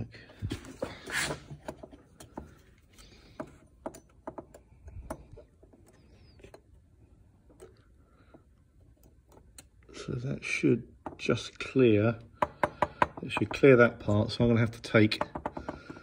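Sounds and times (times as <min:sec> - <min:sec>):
clicks and taps of metal parts: 0:01.6 - 0:09.9.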